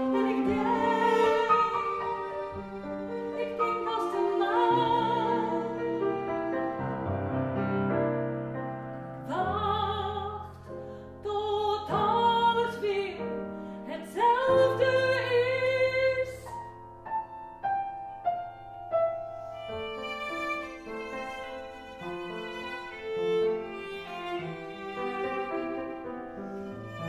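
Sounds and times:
woman singing operatically: 3.4s - 5.6s, 13.9s - 16.4s.

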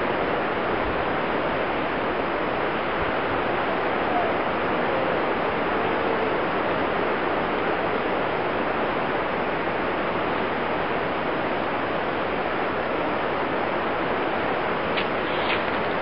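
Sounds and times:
steady rushing hiss: 0.0s - 16.0s.

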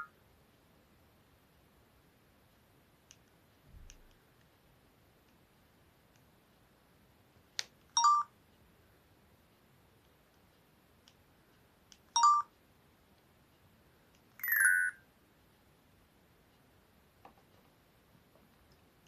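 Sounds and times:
multi-note phone beep: 8.0s - 8.3s, 12.2s - 12.5s, 14.4s - 15.0s.

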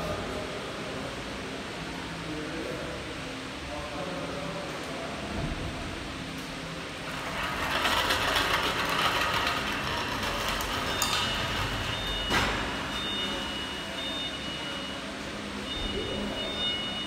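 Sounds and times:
casters rolling on concrete: 7.1s - 11.7s.

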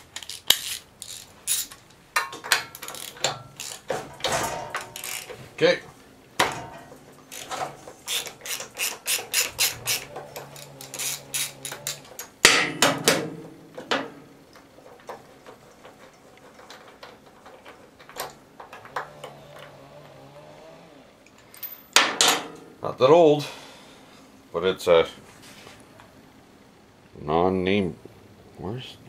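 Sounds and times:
metal clatter: 0.0s - 5.5s, 6.4s - 19.7s
socket ratchet clicking: 2.6s - 3.9s, 4.8s - 5.4s, 7.3s - 12.4s.

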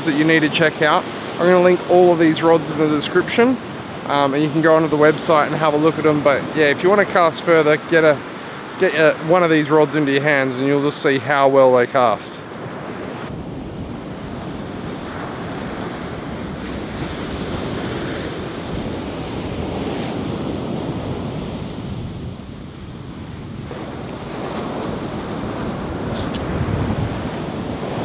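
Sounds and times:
ocean surf on beach: 0.0s - 28.0s
wind buffeting microphone: 12.5s - 28.0s.

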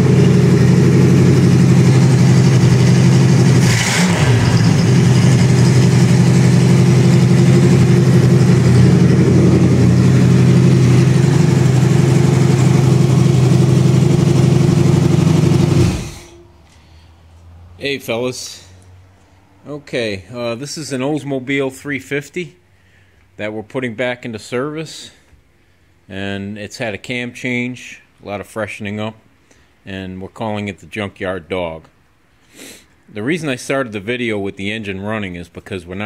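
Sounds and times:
engine running steadily: 0.0s - 16.8s.

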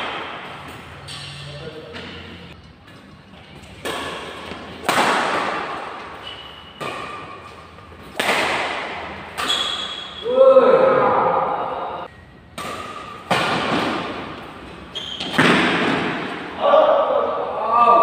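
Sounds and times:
racket hitting shuttlecock: 0.0s - 1.4s, 3.7s - 10.2s, 12.5s - 16.6s.

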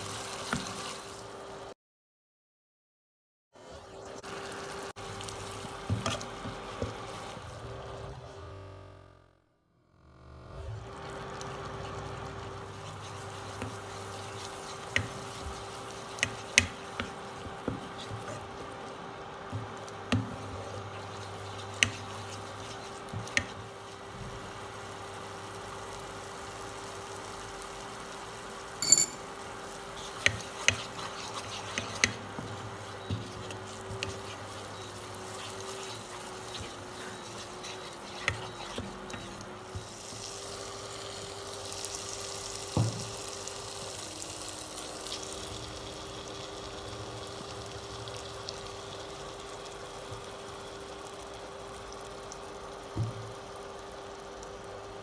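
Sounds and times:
masala sizzling in a pan: 0.0s - 1.8s, 3.6s - 8.1s, 10.8s - 55.0s
spatula scraping a pan: 11.8s - 18.8s, 20.6s - 24.2s, 29.8s - 40.1s.

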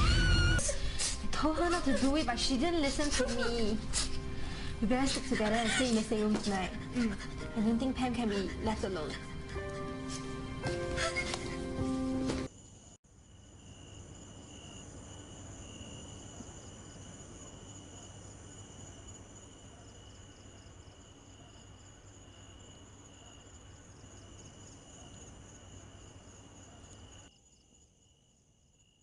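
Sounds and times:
crickets chirping: 12.5s - 29.0s.

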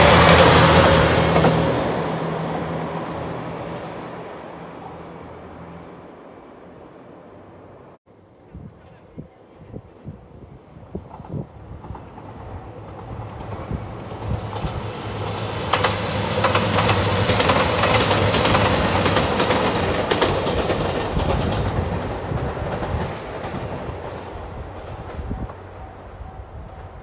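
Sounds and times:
diesel train engine drone: 0.0s - 8.0s, 10.5s - 27.0s
train wheels clattering over rail joints: 11.0s - 25.6s.

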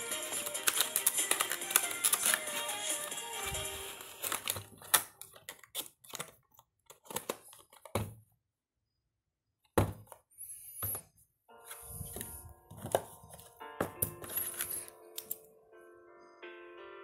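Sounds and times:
toy box clicks and crackles: 0.1s - 7.9s.

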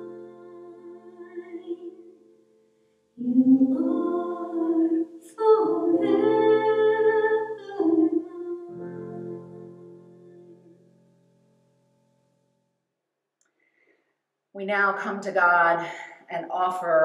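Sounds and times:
woman singing a hymn: 0.0s - 2.0s, 3.2s - 10.0s.

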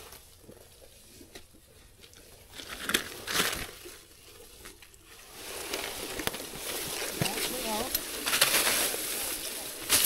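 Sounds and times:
dry leaves rustling and crunching: 5.2s - 10.0s.

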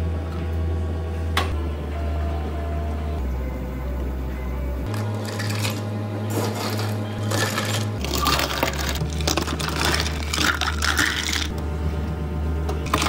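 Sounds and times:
background music: 0.6s - 13.0s
ice cubes clattering into cups: 4.9s - 11.5s.

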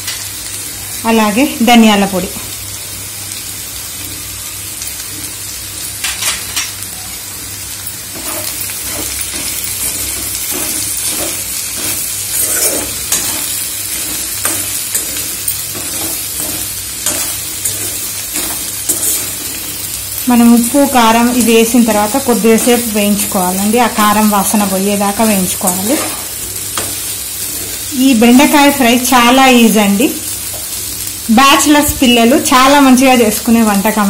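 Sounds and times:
okra sizzling in hot oil: 0.0s - 34.0s
steel spatula scraping and stirring: 8.1s - 19.8s.

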